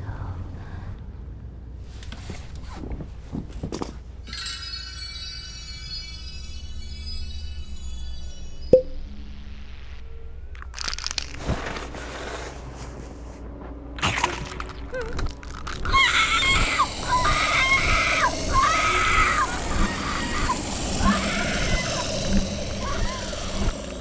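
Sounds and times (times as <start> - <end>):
sharp cracks and crunches: 10.5 - 12.0, 14.0 - 18.2
wavering scream: 15.6 - 24.0
hiss: 16.0 - 24.0.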